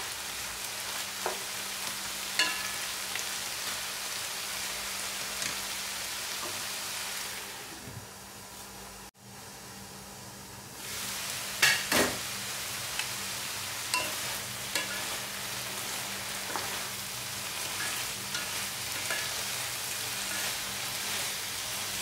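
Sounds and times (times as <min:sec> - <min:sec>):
meat sizzling in a wok: 0:00.0 - 0:22.0
spatulas scraping a pan: 0:13.9 - 0:22.0.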